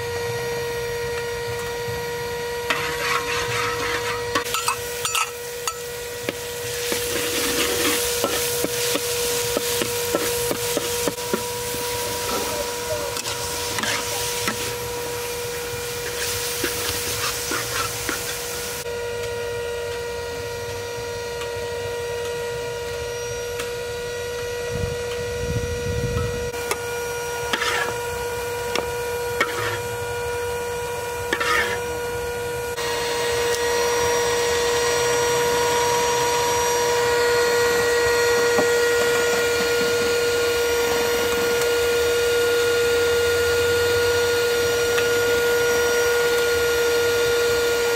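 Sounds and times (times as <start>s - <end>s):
steady hum: 0.0s - 47.9s
metal spatula scraping wok: 2.7s - 5.9s, 6.6s - 11.2s, 13.1s - 14.8s, 15.9s - 18.8s, 27.5s - 28.0s, 29.3s - 29.9s, 31.3s - 31.8s.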